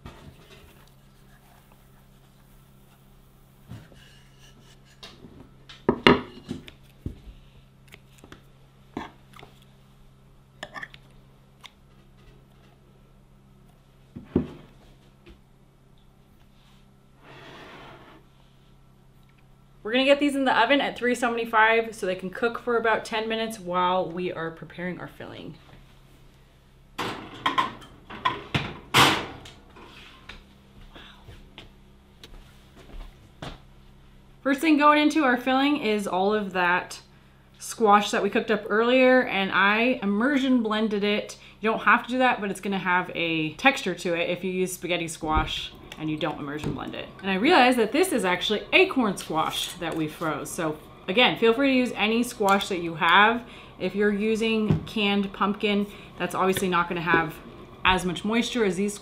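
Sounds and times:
low steady hum: 0.0 - 59.0
oven door slam: 28.6 - 29.4.

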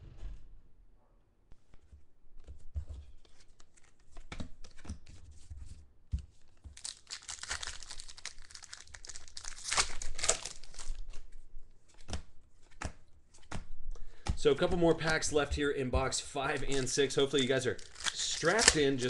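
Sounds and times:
foil wrapper tearing and crinkling: 6.8 - 11.2, 16.6 - 19.0.

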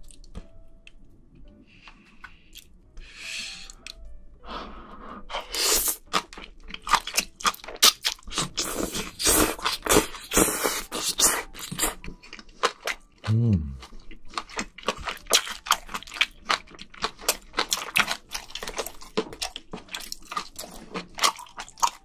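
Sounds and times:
wet slurping and chewing: 5.4 - 22.0.

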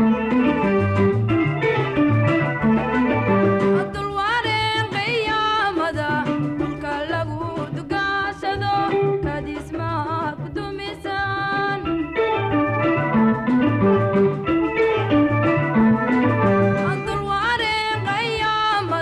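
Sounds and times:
electronic organ: 0.0 - 4.0, 11.8 - 17.2
bass: 0.0 - 19.0
woman singing with vibrato: 3.8 - 12.2, 16.8 - 19.0.

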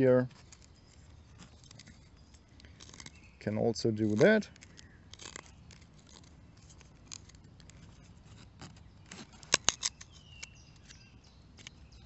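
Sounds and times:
knife cutting wood: 0.3 - 3.3, 4.0 - 12.0.

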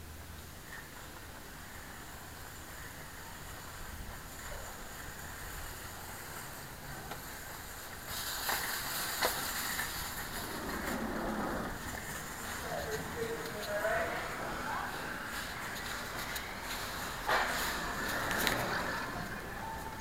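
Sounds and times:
rushing and rubbing on microphone: 7.6 - 19.0.

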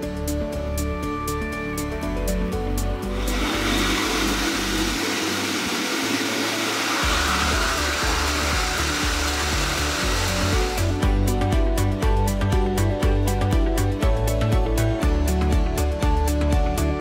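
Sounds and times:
background music with steady beat: 0.0 - 17.0
dog dryer blowing air: 3.0 - 11.2.

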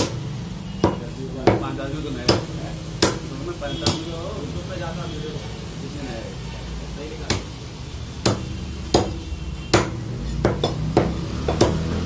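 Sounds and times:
cleaver chopping on wooden block: 0.0 - 0.2, 0.8 - 4.1, 7.3 - 7.5, 8.2 - 11.9.

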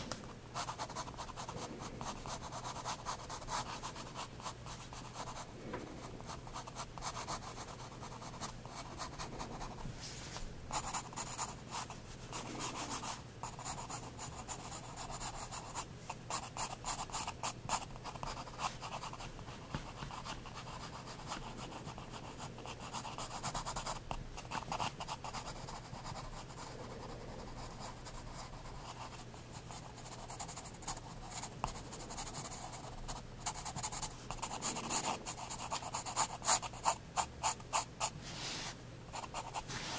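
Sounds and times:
faint low hum: 0.0 - 39.9
pencil scratching on paper: 10.7 - 19.2, 19.8 - 39.9.

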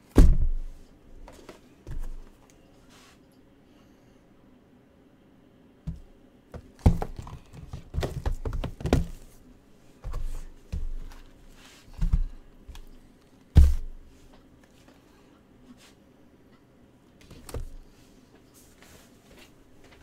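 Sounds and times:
cardboard boxes thudding on table: 6.6 - 9.3, 13.6 - 13.9.

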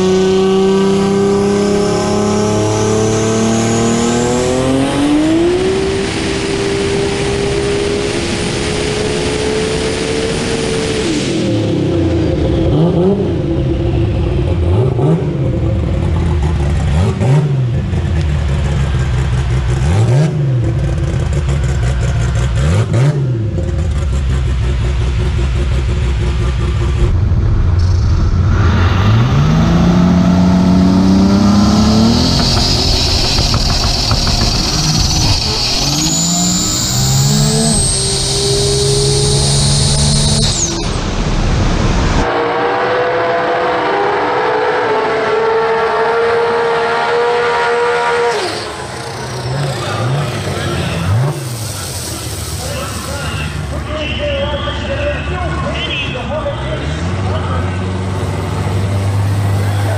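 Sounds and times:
car engine revving: 0.0 - 59.9
turbo whistle: 31.4 - 41.0.

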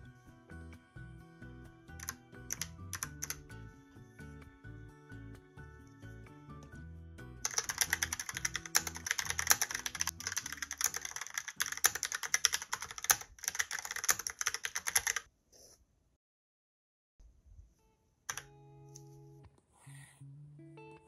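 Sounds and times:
soft background music: 0.0 - 15.1, 17.8 - 21.0
mechanical keyboard typing: 2.0 - 3.4, 7.4 - 15.3.

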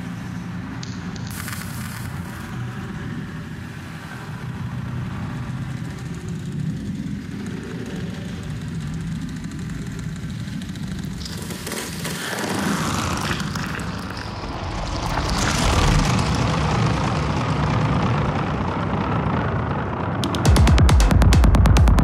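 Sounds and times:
deep rumbling drone: 0.0 - 22.0
fast electronic dance beat: 20.2 - 22.0.

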